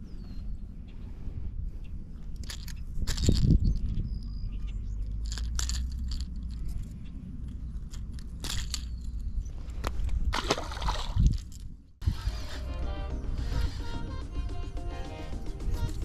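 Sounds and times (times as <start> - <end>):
steady low rumble: 0.0 - 10.4.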